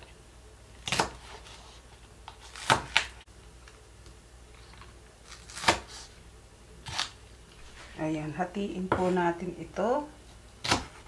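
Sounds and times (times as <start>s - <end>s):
knife chopping on wooden board: 0.8s - 1.4s, 2.6s - 3.1s, 10.6s - 11.0s.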